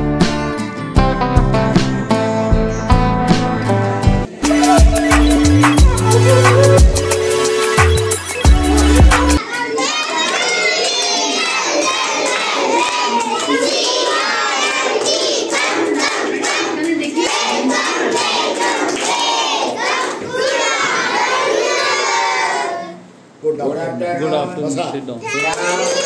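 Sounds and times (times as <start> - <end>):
children shouting: 4.3 - 23.0, 25.2 - 26.0.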